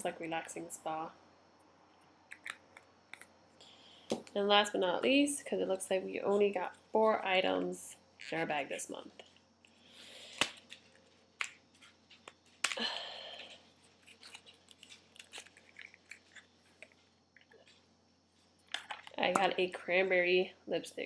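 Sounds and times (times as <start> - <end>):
crinkly packaging rustling: 10.2 - 12.8, 13.4 - 19.2.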